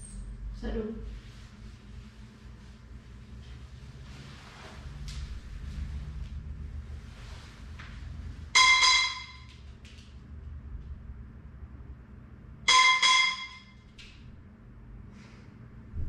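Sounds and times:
sharp ringing metallic strikes: 12.7 - 13.8.

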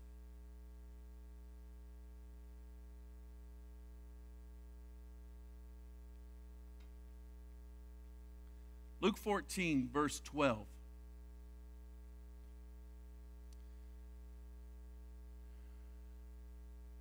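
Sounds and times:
faint electrical mains hum: 0.0 - 17.0
faint click: 6.1 - 7.0, 13.5 - 13.7.

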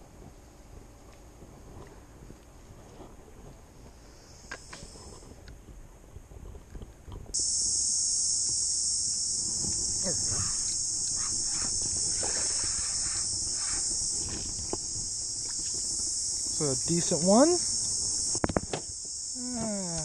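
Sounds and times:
high-pitched insect chorus: 3.9 - 5.3, 7.4 - 20.0.

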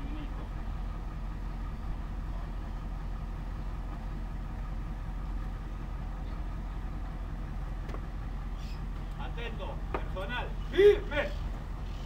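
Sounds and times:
fire engine idling: 0.0 - 12.0.

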